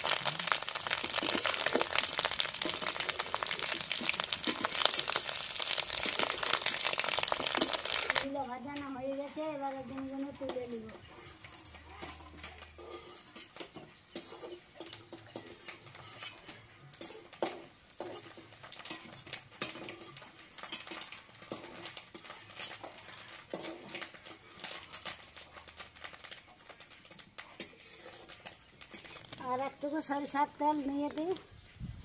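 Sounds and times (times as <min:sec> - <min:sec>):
kitchen utensils clinking: 0:10.3 - 0:25.2.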